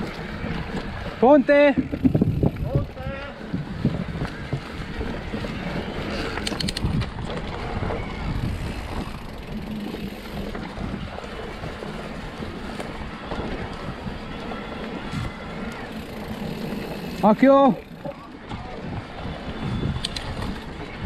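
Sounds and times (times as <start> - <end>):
bike rattling over bumps: 0.0 - 21.0
tyres rumbling over dirt: 0.0 - 21.0
wind buffeting microphone: 0.0 - 21.0
sharp clicks: 6.4 - 7.1.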